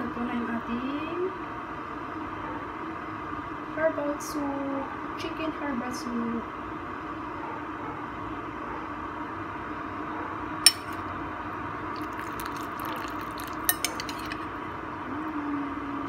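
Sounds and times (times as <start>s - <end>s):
steady background hum: 0.0s - 16.0s
ladle clinking against ceramic pot: 10.7s - 11.0s, 12.0s - 14.5s.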